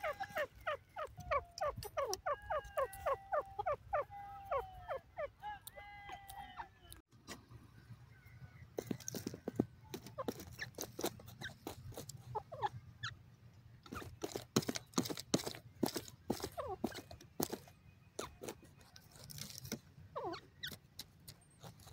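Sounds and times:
partridge calling: 0.0 - 5.8, 8.1 - 13.2, 20.1 - 20.9
sharp clicks and crunches: 8.8 - 12.2, 13.8 - 19.9, 20.5 - 21.9.

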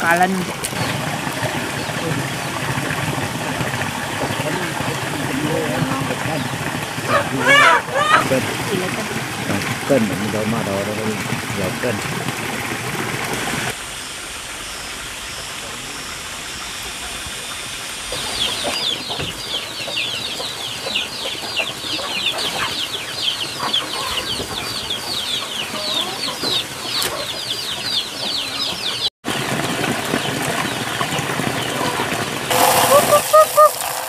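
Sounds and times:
chicks peeping: 18.1 - 34.0.

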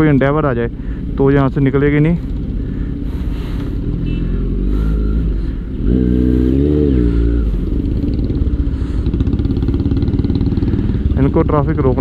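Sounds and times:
motorcycle engine revving: 3.7 - 12.0.

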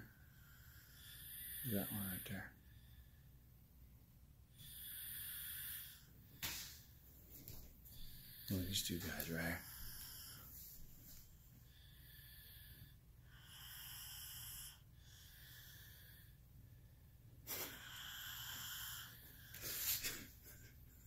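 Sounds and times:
sleeping child breathing: 4.5 - 20.4.

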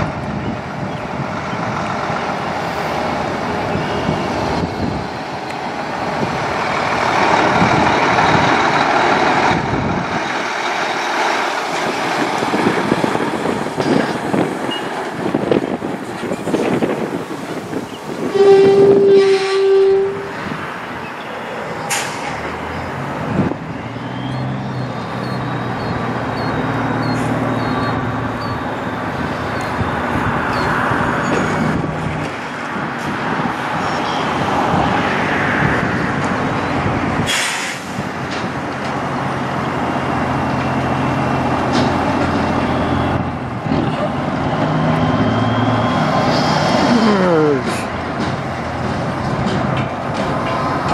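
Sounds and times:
diesel truck engine running: 0.0 - 18.2
air brake hisses: 37.2 - 38.0.

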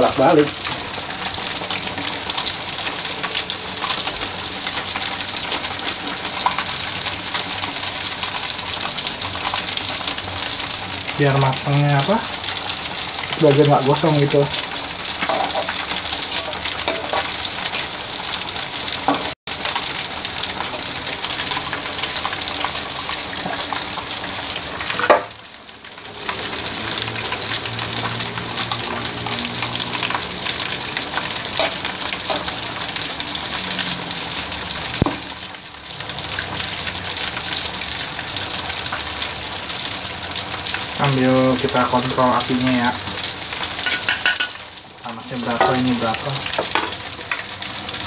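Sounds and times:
chicken sizzling in hot oil: 0.0 - 48.0
tongs scraping and clinking on wok: 16.4 - 17.3, 43.8 - 44.6.

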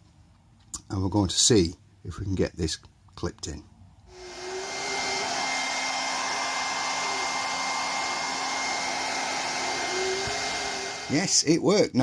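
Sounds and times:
hairdryer blowing: 4.1 - 11.4.

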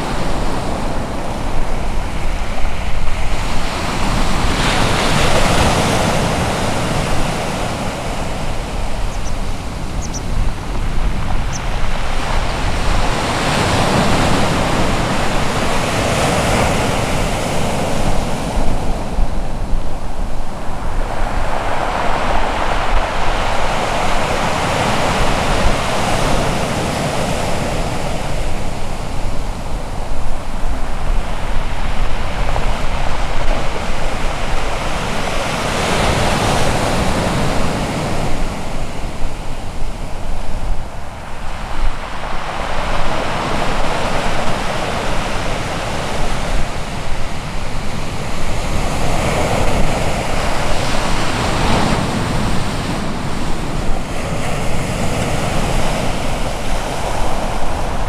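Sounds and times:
surf breaking on shore: 0.0 - 58.0.

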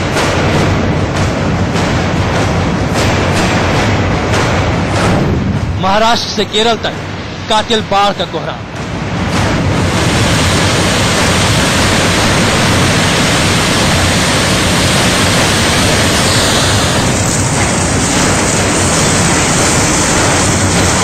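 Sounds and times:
floodwater rushing: 9.7 - 21.0.

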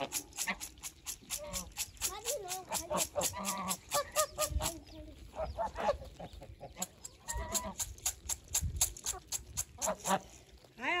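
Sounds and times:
birds pecking taps: 0.0 - 10.8
geese honking: 2.7 - 7.9, 9.8 - 11.0.

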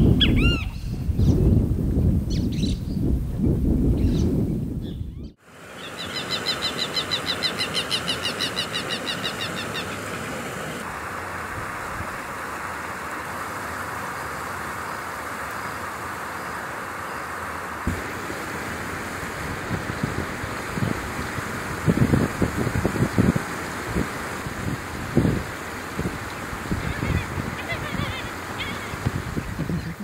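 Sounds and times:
bird calling harsh repeated notes: 5.2 - 10.7
steady background hiss: 5.4 - 30.0.

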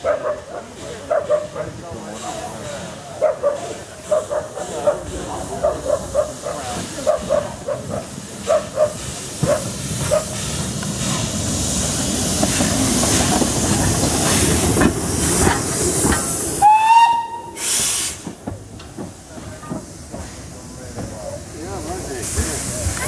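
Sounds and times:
rush of steam: 0.0 - 23.0
steam engine rumble: 0.0 - 23.0
steam whistle blast: 16.6 - 18.2.

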